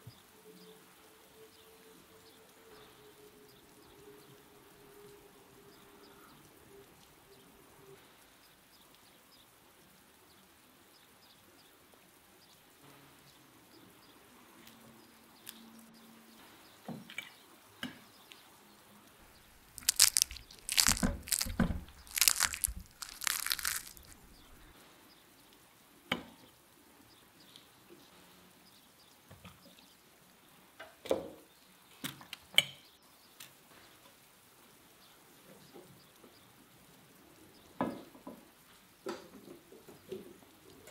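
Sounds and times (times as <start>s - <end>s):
chicken skin crunching: 19.3s - 24.7s.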